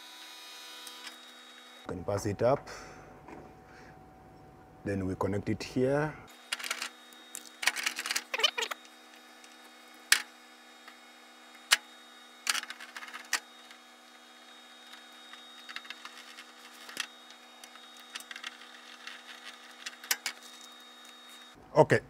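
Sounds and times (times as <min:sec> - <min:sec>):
wire and plastic clicking: 0:14.9 - 0:21.2.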